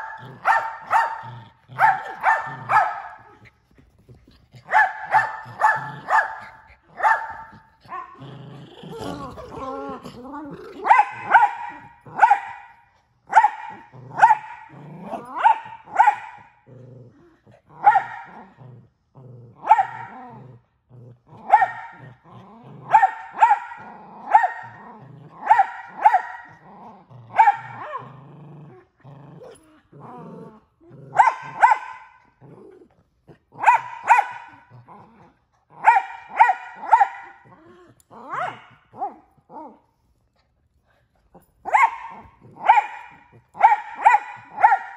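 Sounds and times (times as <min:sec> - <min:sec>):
dog barking loudly: 0:00.0 - 0:03.4, 0:04.6 - 0:08.2, 0:10.8 - 0:16.5, 0:17.7 - 0:18.4, 0:19.6 - 0:20.2, 0:21.4 - 0:22.1, 0:22.9 - 0:24.8, 0:25.4 - 0:26.6, 0:27.3 - 0:28.0, 0:31.1 - 0:32.2, 0:33.6 - 0:34.7, 0:35.8 - 0:37.4, 0:38.3 - 0:39.2, 0:41.6 - 0:44.9
dog growling: 0:00.0 - 0:12.3, 0:13.7 - 0:35.9, 0:36.8 - 0:44.7.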